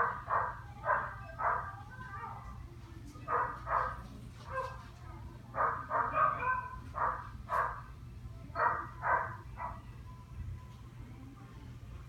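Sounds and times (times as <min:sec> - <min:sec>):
dogs barking: 0:00.0 - 0:02.4, 0:03.3 - 0:04.8, 0:05.6 - 0:07.9, 0:08.6 - 0:09.9.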